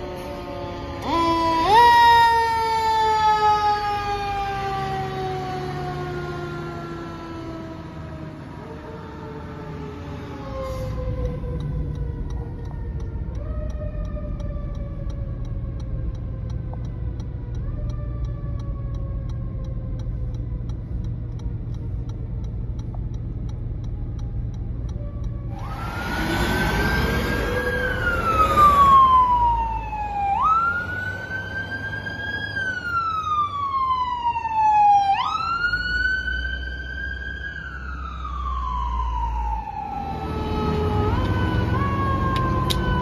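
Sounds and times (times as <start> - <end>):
emergency vehicle siren: 0.0 - 43.0
fire truck siren wailing: 0.0 - 43.0.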